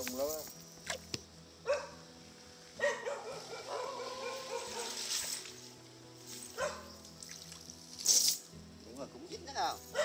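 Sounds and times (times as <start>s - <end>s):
dog yelping: 2.8s - 5.0s.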